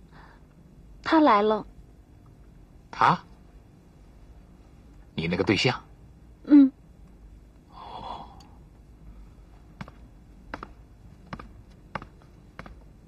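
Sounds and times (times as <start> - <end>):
breathy oh: 7.7 - 8.6.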